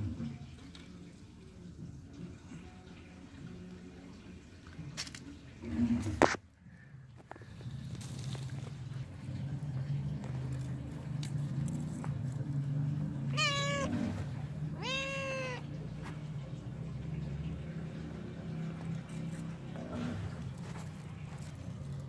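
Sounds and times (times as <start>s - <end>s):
cat meowing: 13.2s - 16.0s.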